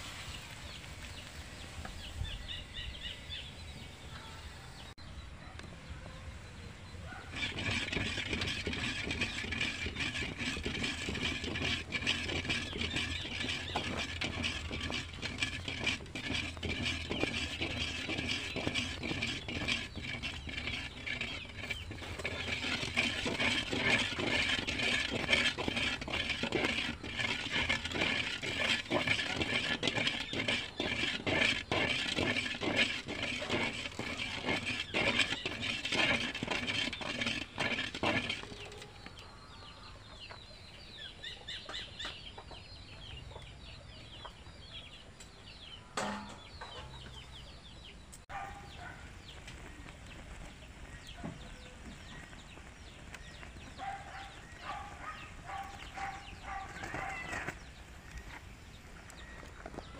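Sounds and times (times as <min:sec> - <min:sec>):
metal spoon scraping metal basin: 0:07.1 - 0:39.5, 0:45.6 - 0:47.4, 0:50.9 - 0:59.9.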